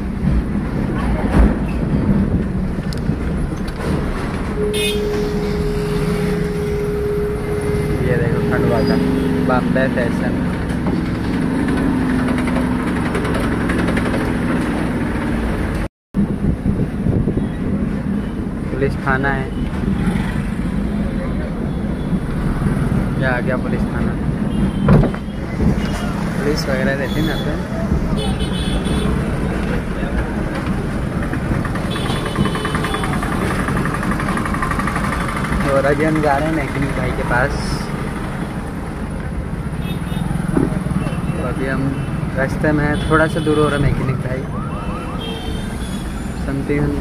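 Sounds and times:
diesel engine rumble: 0.0s - 18.8s, 19.6s - 42.9s
diesel truck engine running: 29.2s - 39.8s.

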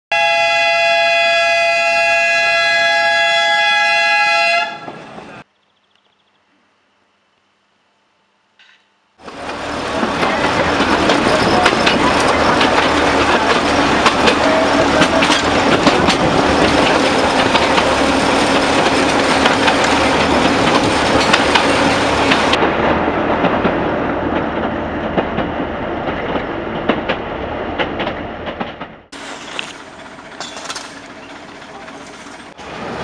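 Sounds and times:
train wheels clicking on rails: 8.6s - 22.6s, 23.4s - 33.0s
diesel locomotive engine: 9.2s - 33.0s.

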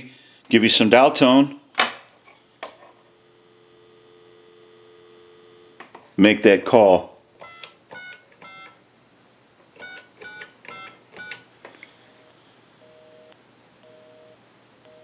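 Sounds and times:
keypad dial tones: 7.4s - 8.8s, 9.7s - 11.5s.

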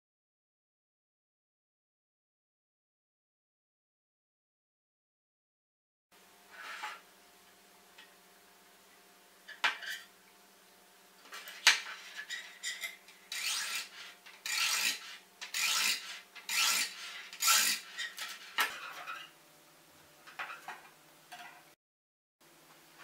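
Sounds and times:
sharpener scraping metal blade: 13.3s - 18.4s.

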